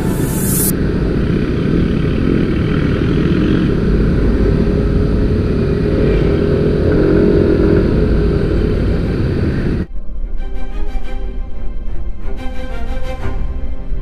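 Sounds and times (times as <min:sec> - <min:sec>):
motorcycle engine running: 0:00.0 - 0:09.9
wind rush on microphone: 0:00.0 - 0:09.9.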